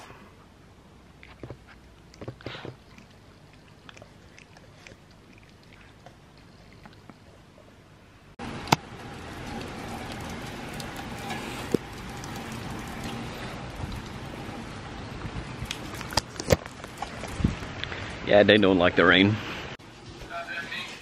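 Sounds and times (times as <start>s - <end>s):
rain falling on wet paving: 8.4s - 17.8s.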